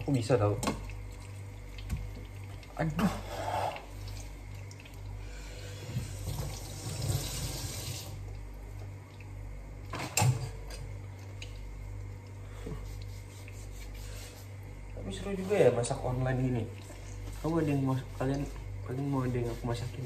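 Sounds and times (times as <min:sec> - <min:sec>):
kitchen tap running: 0:00.0 - 0:08.3
steady low hum: 0:00.0 - 0:20.0.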